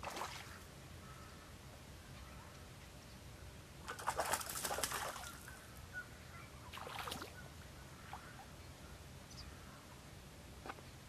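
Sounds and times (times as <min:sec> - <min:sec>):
water splashing: 0:00.0 - 0:00.6, 0:03.8 - 0:05.5, 0:06.7 - 0:07.4.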